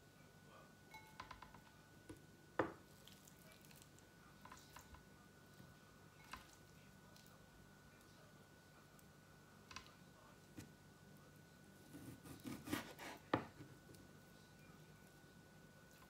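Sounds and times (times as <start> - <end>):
knife knocking on wooden board: 2.6 - 2.8.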